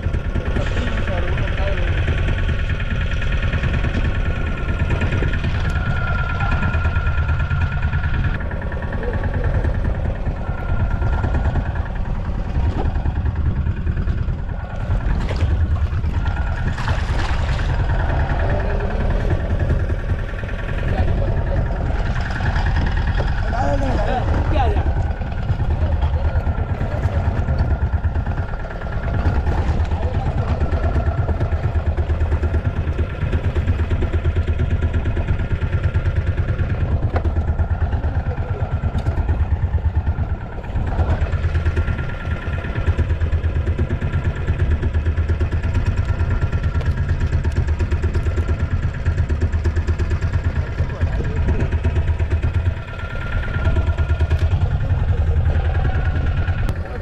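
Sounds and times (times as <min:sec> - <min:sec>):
boat engine idling: 0:00.0 - 0:57.0.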